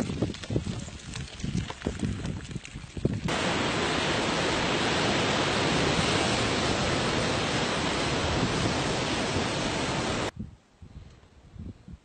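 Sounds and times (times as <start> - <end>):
ocean surf against a cliff: 3.3 - 10.3.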